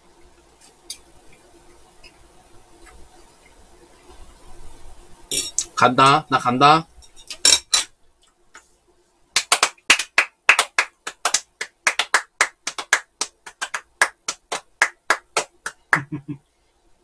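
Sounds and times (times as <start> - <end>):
people clapping hands: 9.4 - 16.2.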